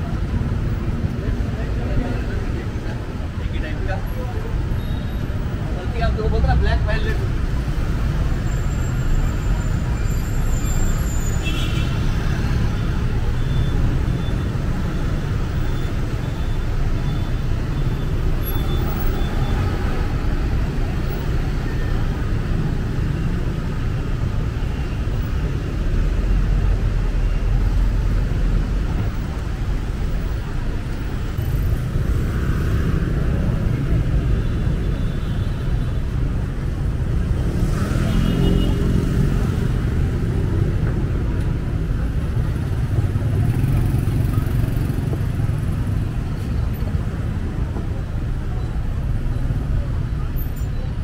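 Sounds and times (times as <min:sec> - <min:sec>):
motorbikes and cars passing: 0:00.0 - 0:51.0.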